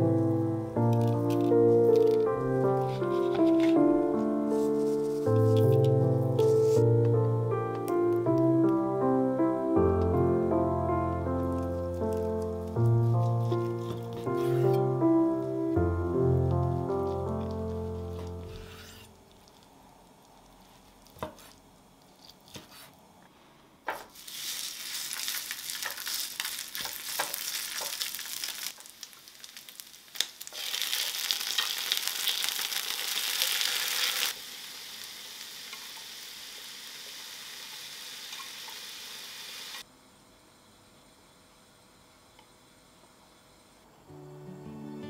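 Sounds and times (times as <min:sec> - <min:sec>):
rice sizzling on a hot plate: 0:01.0 - 0:03.8, 0:16.7 - 0:22.4, 0:24.0 - 0:39.9.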